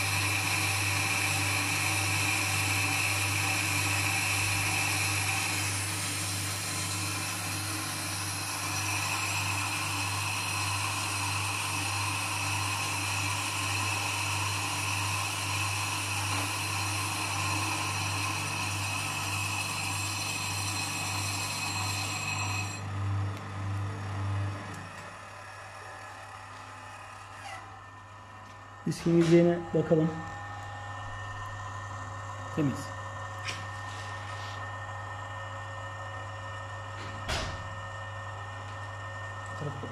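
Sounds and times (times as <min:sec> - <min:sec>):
cutting tool whine and hiss: 0:00.0 - 0:22.8
lathe motor hum: 0:00.0 - 0:37.0, 0:37.7 - 0:39.9.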